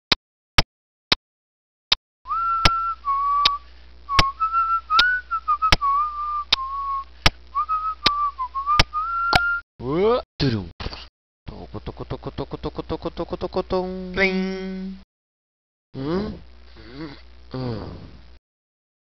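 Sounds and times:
person whistling a tune: 0:02.3 - 0:09.6
faint low hum: 0:02.3 - 0:10.7, 0:11.5 - 0:15.0.

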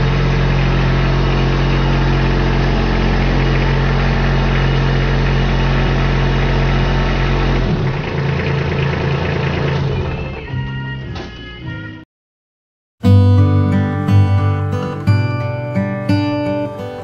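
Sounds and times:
tractor diesel engine idling: 0:00.0 - 0:10.2.

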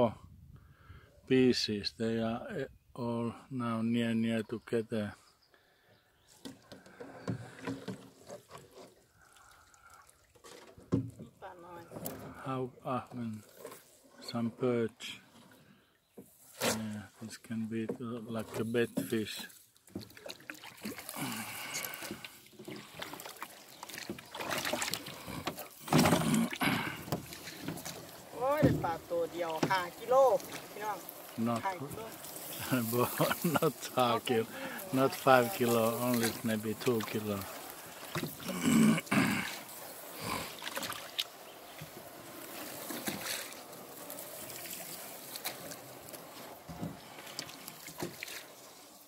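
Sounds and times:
water splashing: 0:06.5 - 0:14.3, 0:18.4 - 0:49.0
reeds rustling: 0:25.7 - 0:38.7.

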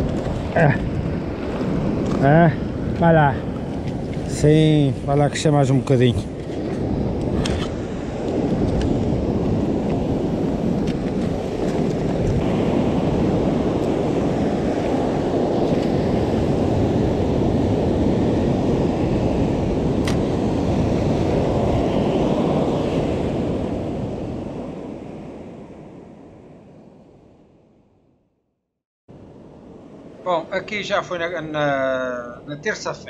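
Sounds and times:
surf washing over rocks: 0:00.0 - 0:25.8
wind buffeting microphone: 0:00.0 - 0:27.4.

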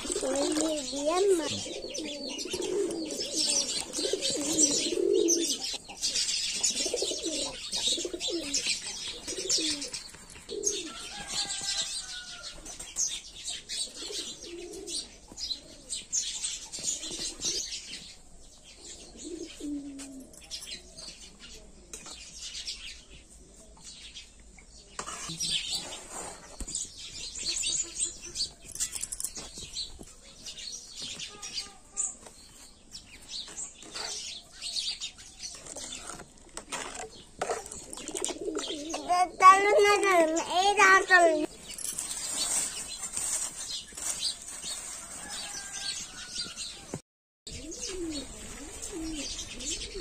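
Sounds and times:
pigeons cooing: 0:00.0 - 0:12.4, 0:13.5 - 0:21.9, 0:33.8 - 0:41.5, 0:47.5 - 0:50.0
dry scratchy rustling: 0:40.1 - 0:46.6.

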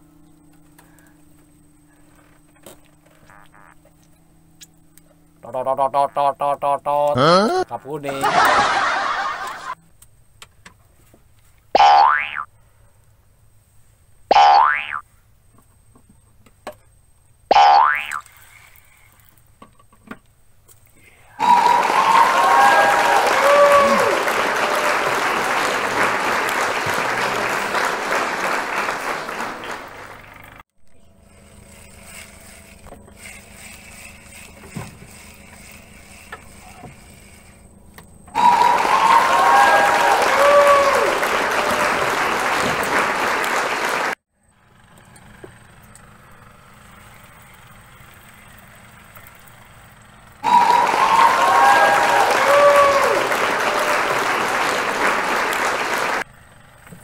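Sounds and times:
faint hum: 0:00.0 - 0:11.8, 0:20.7 - 0:57.0
applause with cheering: 0:21.3 - 0:30.6, 0:38.4 - 0:44.2, 0:50.4 - 0:56.2.

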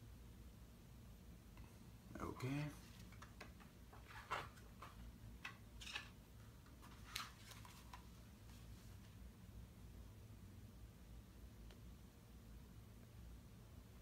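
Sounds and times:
pages turning: 0:02.8 - 0:09.2.

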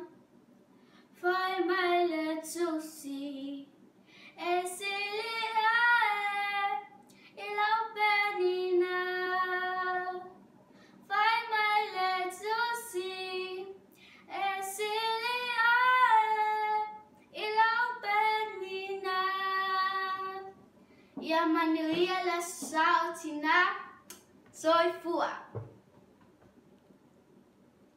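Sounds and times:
girl singing unaccompanied: 0:01.2 - 0:10.4, 0:11.1 - 0:20.6, 0:21.2 - 0:25.6.

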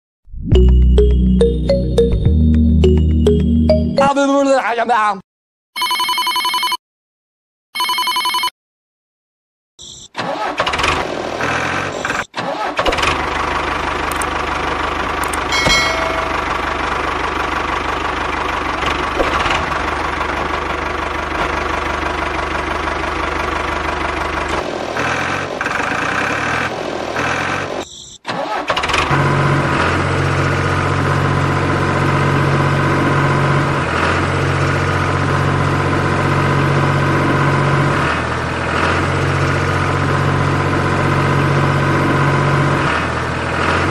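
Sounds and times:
electronic ringtone beeps: 0:00.5 - 0:04.2, 0:05.8 - 0:06.8, 0:07.8 - 0:08.5
tractor engine running: 0:10.2 - 0:27.7, 0:28.3 - 0:43.9.

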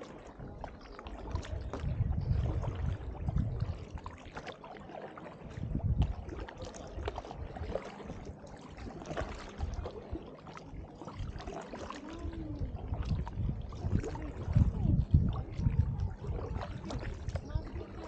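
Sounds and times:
paddle splashing through water: 0:00.0 - 0:18.0
heavy low rumble: 0:12.1 - 0:18.0.

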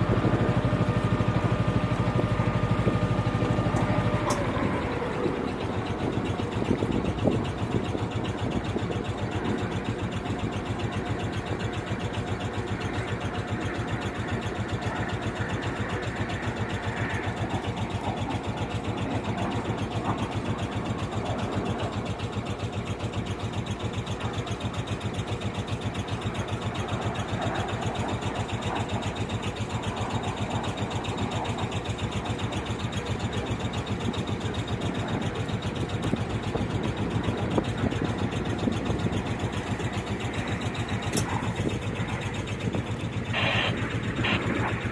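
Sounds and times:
motorboat engine throbbing: 0:00.0 - 0:44.9.

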